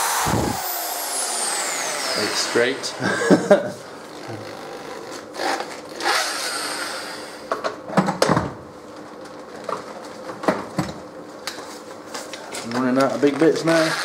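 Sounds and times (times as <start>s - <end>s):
electric drill running: 0.0s - 3.2s, 4.0s - 7.5s, 13.8s - 14.0s.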